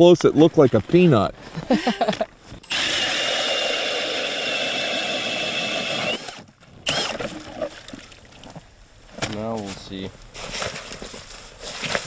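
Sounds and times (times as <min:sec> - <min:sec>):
drill motor whine: 0:02.6 - 0:07.2.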